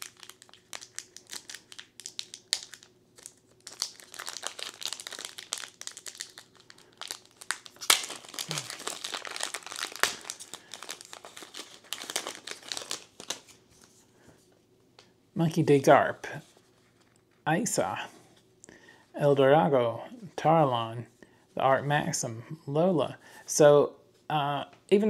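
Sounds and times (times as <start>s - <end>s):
foil wrapper crinkling: 0.0s - 14.0s.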